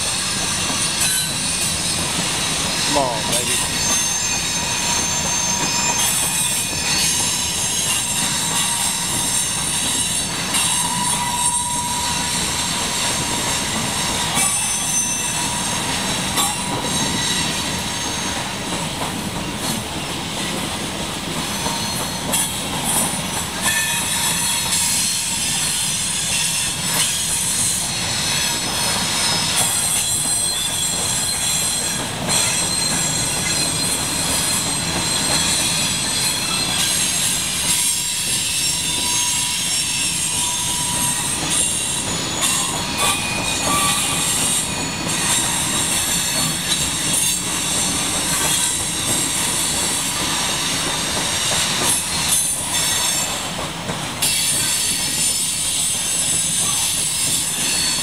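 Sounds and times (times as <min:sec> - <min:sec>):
train wheels rumbling on rail: 0:00.0 - 0:58.0
high-pitched wheel squeal: 0:02.9 - 0:12.4, 0:14.3 - 0:15.8, 0:16.4 - 0:18.4, 0:23.6 - 0:49.4, 0:54.2 - 0:58.0.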